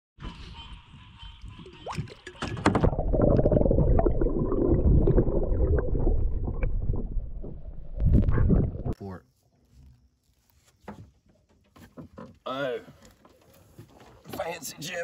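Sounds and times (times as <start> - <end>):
muffled underwater gurgling: 1.3 - 9.0
small knocks underwater: 1.8 - 3.5.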